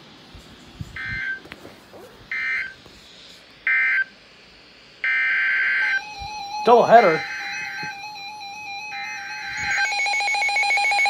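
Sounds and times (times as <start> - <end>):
warbling digital data bursts: 5.0 - 11.0.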